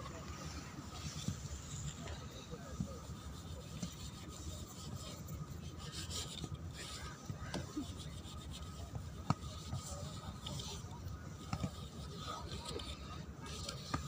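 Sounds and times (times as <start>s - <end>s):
cloth wiping a plastic pipe: 0.0s - 14.0s.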